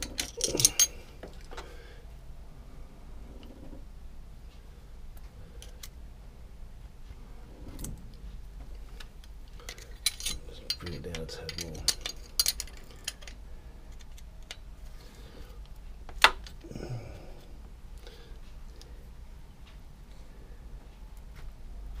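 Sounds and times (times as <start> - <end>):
metal tools clicking on valve gear: 0.0 - 1.0, 9.6 - 14.6.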